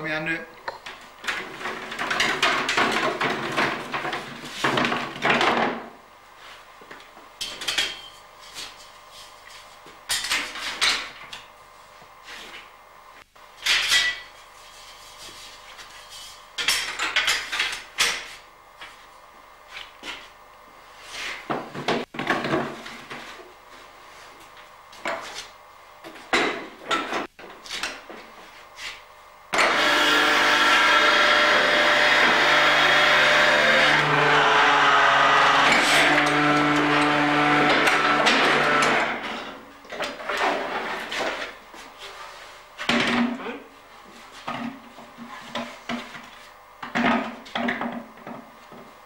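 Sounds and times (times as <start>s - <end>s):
machine whirring and rasping: 29.6s - 39.2s.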